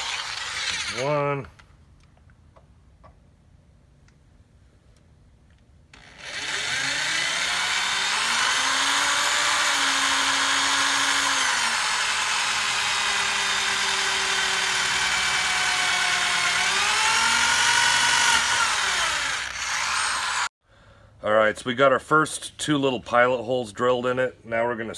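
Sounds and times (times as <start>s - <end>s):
electric drill whining: 0.0s - 1.2s, 6.0s - 20.5s.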